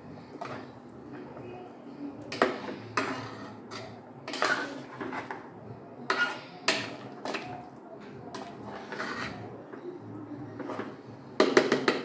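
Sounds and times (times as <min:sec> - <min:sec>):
metal cookware clanking: 0:02.3 - 0:05.4.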